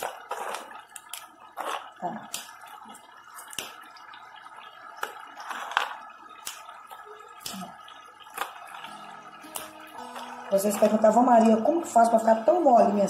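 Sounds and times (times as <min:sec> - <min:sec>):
pork cracklings crunching in a pan: 0:05.0 - 0:08.9.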